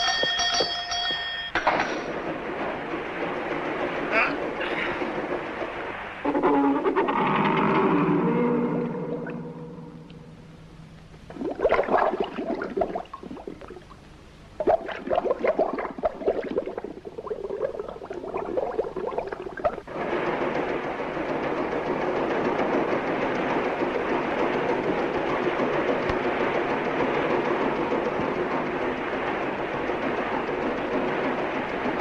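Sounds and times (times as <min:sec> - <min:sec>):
steady machine noise: 0:00.0 - 0:32.0
underwater air bubbling: 0:10.8 - 0:32.0.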